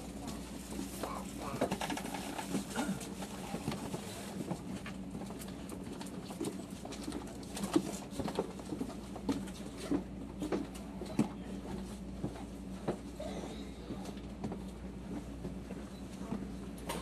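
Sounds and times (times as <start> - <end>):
train low hum: 0.0 - 17.0
train car clicks creaks and rattles: 1.0 - 4.1.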